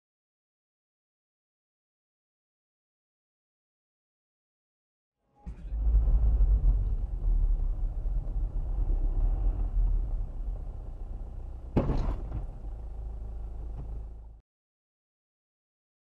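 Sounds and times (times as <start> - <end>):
car engine rumble: 5.5 - 14.4
road noise: 5.5 - 14.4
sharp knock: 11.8 - 12.5.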